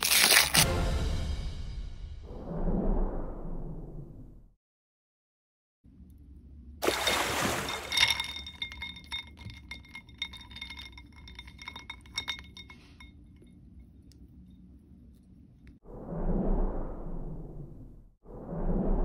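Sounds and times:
plastic packaging crinkling: 0.0s - 0.6s
plastic toy pieces clinking: 0.0s - 0.6s.

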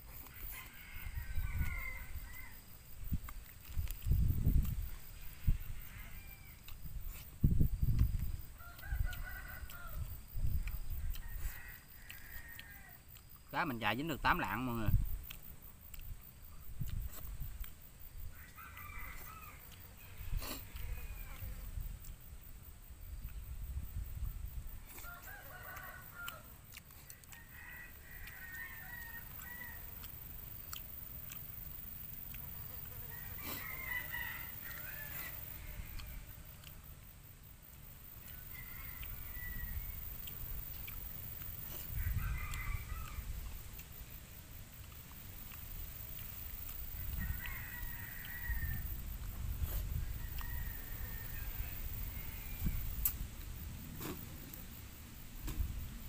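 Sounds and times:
rooster crowing: 0.2s - 2.7s, 5.4s - 6.7s, 8.6s - 10.2s, 11.0s - 13.0s, 18.3s - 21.6s, 24.9s - 26.5s, 27.1s - 30.1s, 32.6s - 36.4s, 38.2s - 40.1s, 41.9s - 43.4s, 46.9s - 49.0s, 49.9s - 52.9s.

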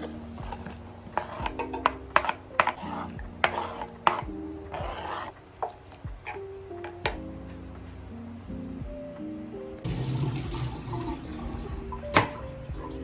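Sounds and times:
spatula scraping board: 0.0s - 5.4s
knife chopping on cutting board: 1.2s - 5.3s.

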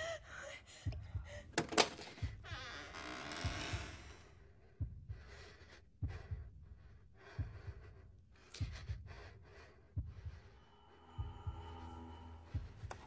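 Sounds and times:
heartbeat thumps: 0.0s - 13.0s
heavy airy breathing: 4.6s - 13.0s
steady drone tone: 10.6s - 13.0s.

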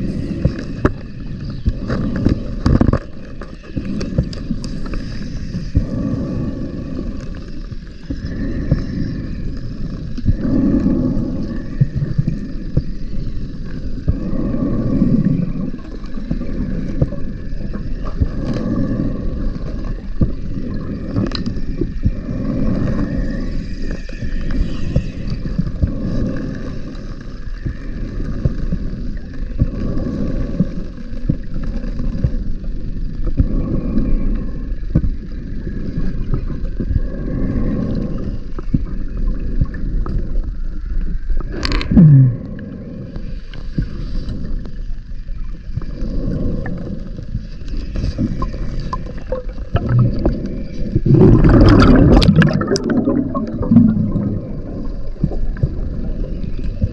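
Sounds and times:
diver breathing through regulator: 0.0s - 40.4s, 45.7s - 56.9s
rumble of bubbles: 0.0s - 56.9s.

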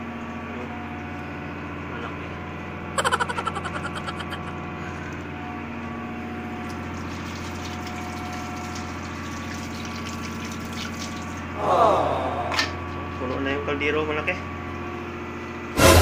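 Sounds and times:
tap water running into sink: 6.6s - 11.5s.

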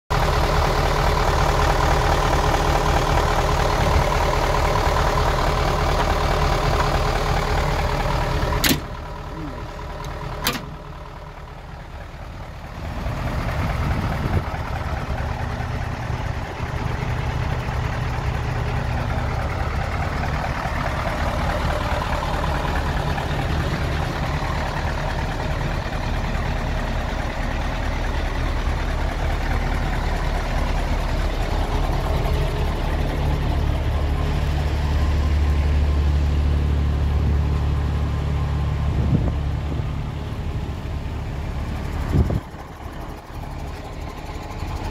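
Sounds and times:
diesel truck engine idling: 0.1s - 44.9s
sharp click: 8.6s - 9.0s, 10.0s - 10.8s.

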